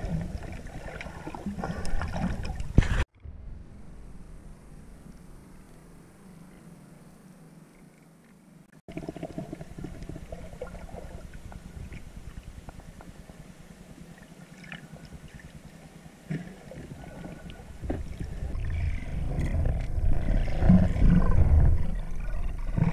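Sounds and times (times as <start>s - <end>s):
underwater fluttering rumble: 8.9s - 22.9s.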